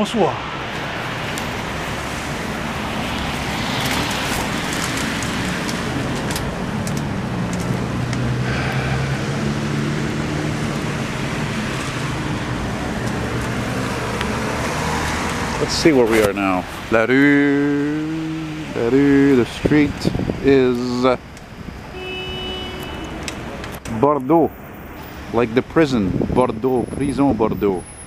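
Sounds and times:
tyres hissing on wet road: 0.0s - 21.7s
low engine hum: 1.4s - 16.0s.

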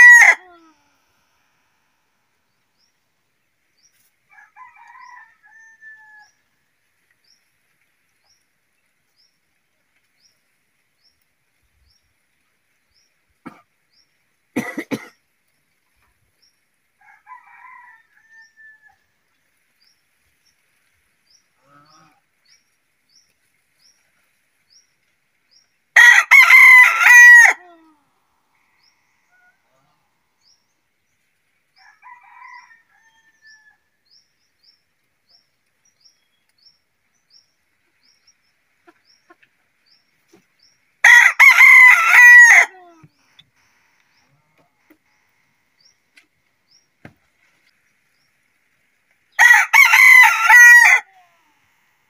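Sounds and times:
rooster crowing: 0.0s - 0.7s, 4.3s - 6.4s, 17.0s - 19.0s, 26.0s - 27.8s, 31.8s - 33.8s, 41.0s - 42.9s, 49.4s - 51.3s.

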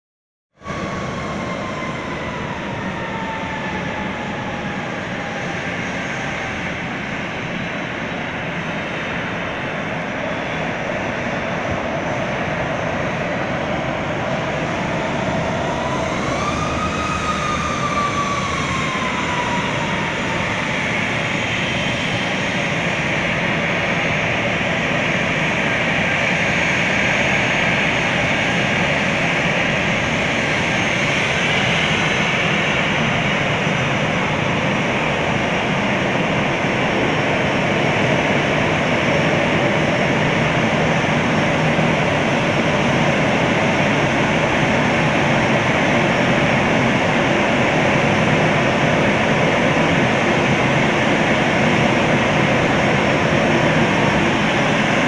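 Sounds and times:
jet engines whining and roaring: 0.6s - 55.0s
whine rising in pitch: 12.8s - 23.1s.

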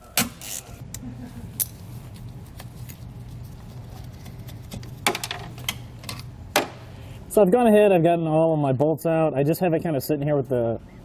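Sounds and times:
steady low hum: 0.0s - 11.0s
tools clicking and knocking on plastic: 4.7s - 6.8s.

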